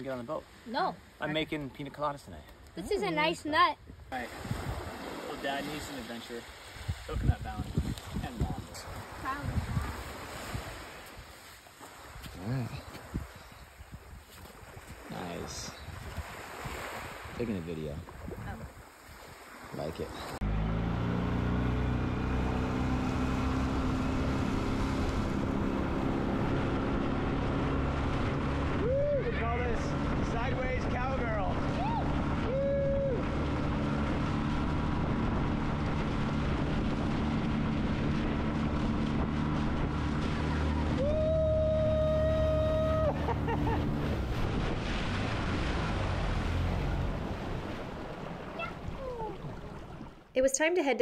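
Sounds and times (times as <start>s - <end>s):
water and waves washing: 0.0s - 20.4s, 21.0s - 50.5s
wind on microphone: 3.8s - 5.2s, 6.7s - 11.4s, 12.0s - 19.5s, 23.0s - 50.1s
boat motor droning: 20.4s - 50.2s.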